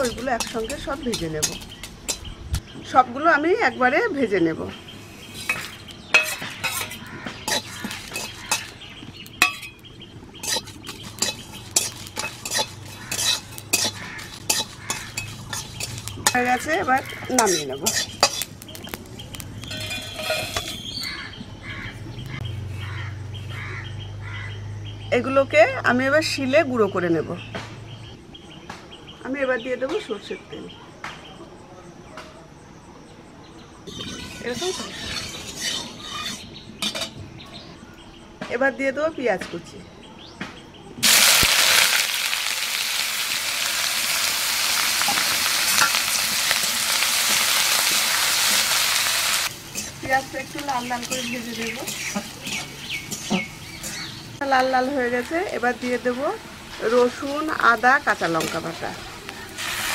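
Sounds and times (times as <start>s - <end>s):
onion sizzling in hot oil: 0.0s - 2.3s, 4.8s - 21.3s, 41.0s - 59.9s
spices rattling onto steel plate: 0.0s - 2.4s, 5.4s - 21.2s, 41.0s - 54.2s
bird calling: 4.7s - 24.6s.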